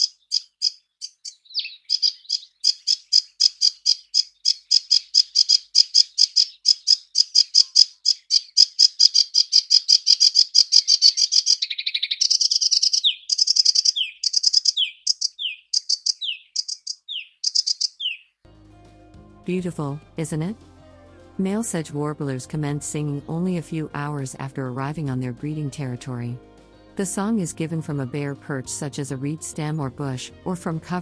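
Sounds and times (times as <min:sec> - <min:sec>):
warbler song: 0:00.0 - 0:18.4.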